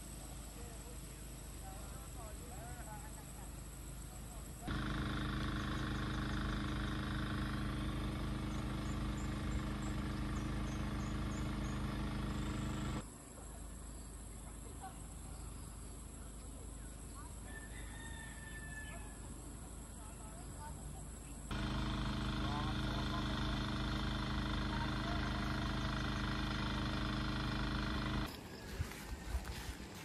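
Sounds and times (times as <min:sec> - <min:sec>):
engine-like drone: 0:04.6 - 0:13.0, 0:21.5 - 0:30.0.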